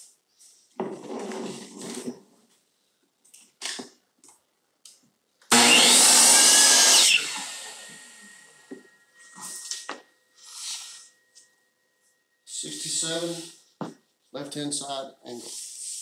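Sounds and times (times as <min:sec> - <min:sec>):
miter saw cutting wood: 0:05.5 - 0:08.6
saw blade winding down: 0:05.5 - 0:08.6.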